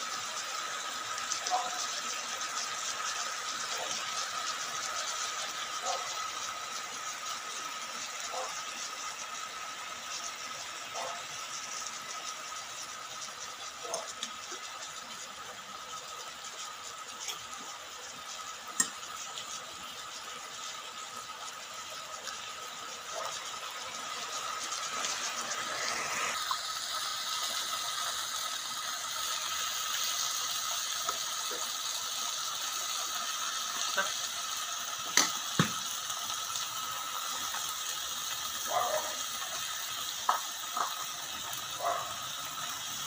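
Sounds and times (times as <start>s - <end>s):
meat and vegetables sizzling: 0.0s - 43.0s
pops and clicks: 40.2s - 41.1s.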